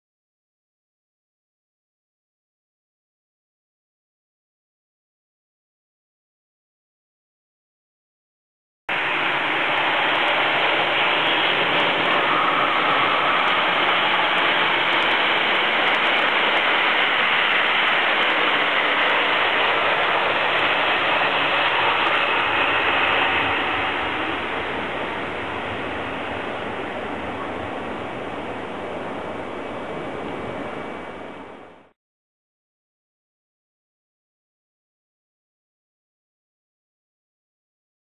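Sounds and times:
train passing at speed: 8.9s - 32.0s.

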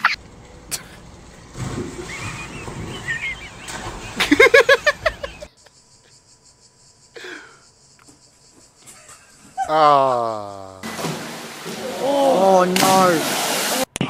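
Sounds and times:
splashing into water: 0.0s - 5.5s, 10.8s - 13.9s
loud rapid laughter: 2.0s - 5.5s.

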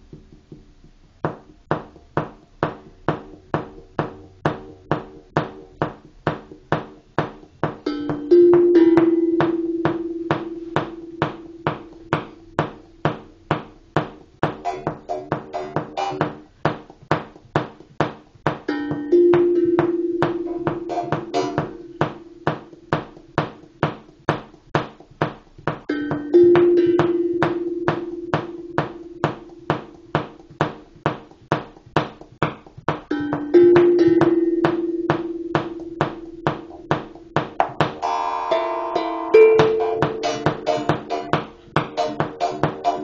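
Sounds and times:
struck metal percussion beat: 0.1s - 43.0s
higher ringing notes: 7.9s - 13.5s, 18.7s - 23.8s, 25.9s - 30.6s, 33.1s - 43.0s.

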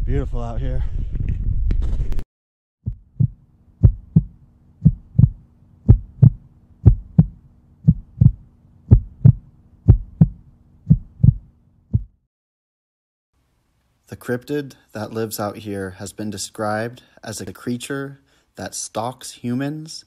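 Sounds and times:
heartbeat thumps: 2.8s - 12.2s
faint steady hum: 2.9s - 11.9s.

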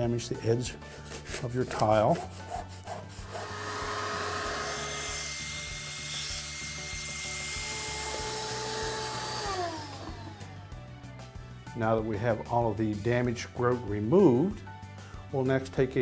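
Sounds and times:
grout rake scraping tile joint: 0.9s - 4.5s
vacuum cleaner running: 3.2s - 5.8s, 7.6s - 10.6s.

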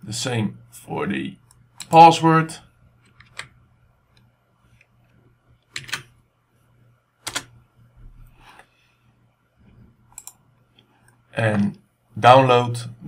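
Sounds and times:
mouse and keyboard clicks: 10.1s - 10.4s.

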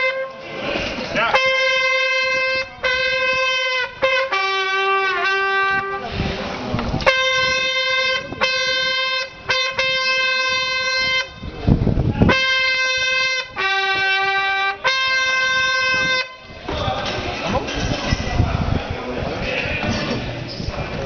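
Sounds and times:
brass horn long notes: 0.0s - 0.6s, 1.2s - 6.3s, 7.0s - 11.5s, 12.2s - 16.6s
dull rumbling noise: 0.3s - 21.0s.

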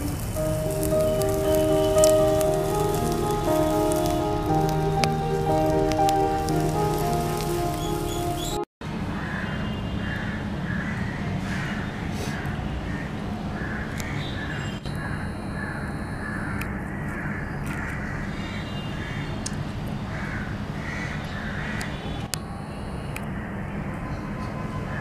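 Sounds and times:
crows cawing: 9.2s - 14.2s, 20.2s - 21.8s.

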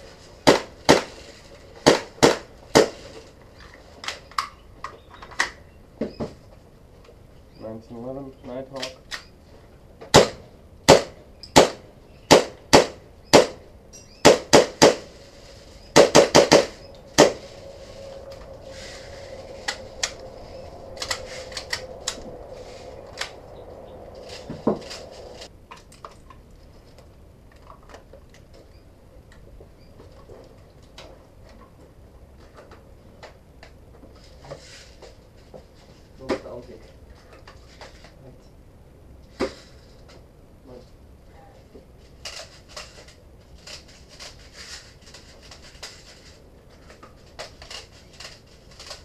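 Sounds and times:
airsoft pistol shots: 10.1s - 13.6s, 14.2s - 15.1s, 16.0s - 17.4s.

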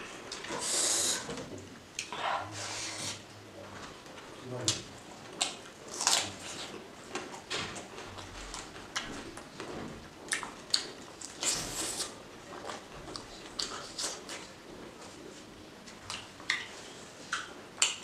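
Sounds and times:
wet chewing and lip smacks: 10.3s - 12.1s, 16.1s - 18.0s.

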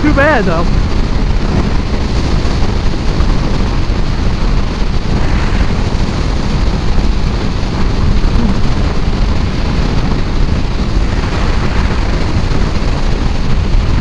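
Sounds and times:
wind rushing on microphone: 0.0s - 14.0s.

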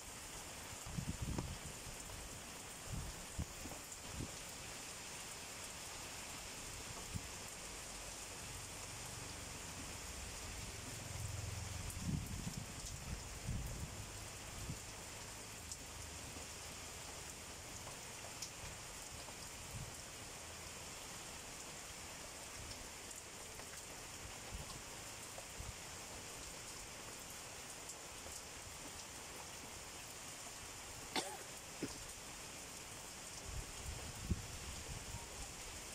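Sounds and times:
heavy rain hissing: 0.0s - 35.9s.

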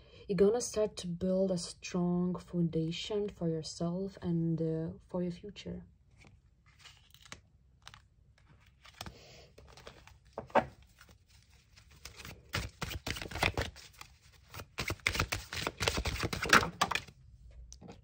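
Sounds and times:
deck of cards shuffling: 6.1s - 17.1s
cards sliding on wooden table: 8.9s - 10.8s.

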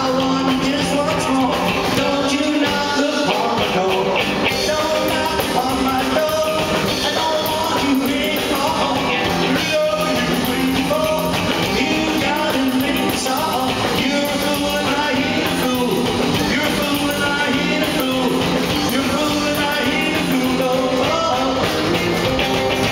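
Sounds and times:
man singing into microphone: 0.0s - 22.0s
acoustic-electric guitar: 0.0s - 22.9s
upright bass: 0.0s - 22.9s.

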